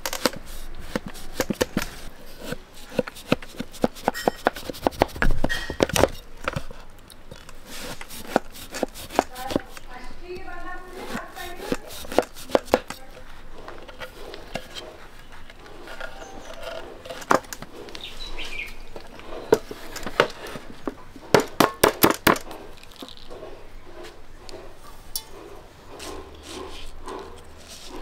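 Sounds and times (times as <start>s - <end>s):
steel plate clinking on wood: 4.0s - 4.6s.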